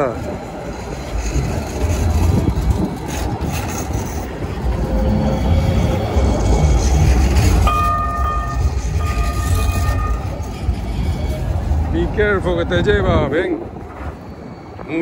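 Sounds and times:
train passing with low rumble: 0.0s - 15.0s
steady high tone: 4.4s - 12.0s.

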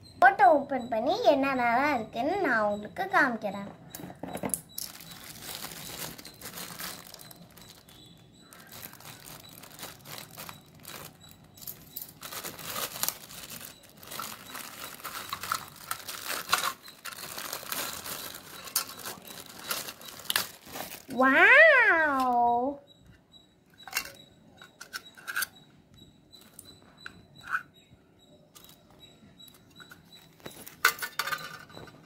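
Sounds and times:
plastic packaging crinkling: 4.6s - 21.3s, 30.0s - 32.0s.

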